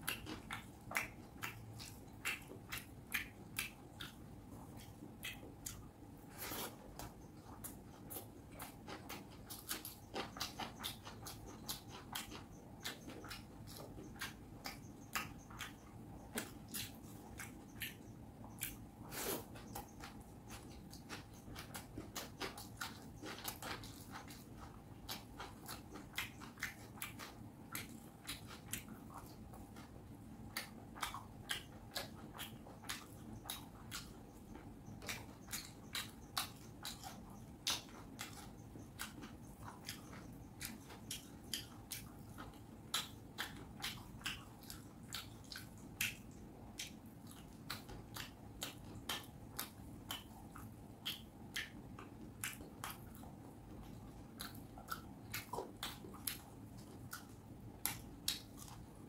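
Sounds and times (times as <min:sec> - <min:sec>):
chewing and mouth sounds: 0:00.0 - 0:59.0.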